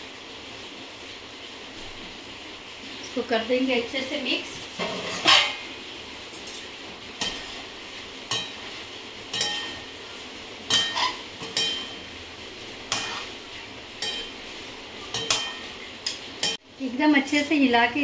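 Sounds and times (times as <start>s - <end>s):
metal utensils clinking and scraping: 4.8s - 5.6s, 9.3s - 9.9s, 10.7s - 12.1s, 12.9s - 13.4s, 15.0s - 16.6s.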